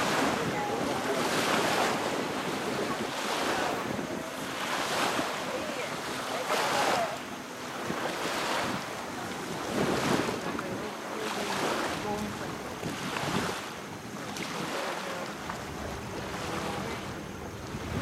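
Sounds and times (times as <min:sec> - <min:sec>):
small waves washing ashore: 0:00.0 - 0:18.0
wind buffeting microphone: 0:00.0 - 0:18.0.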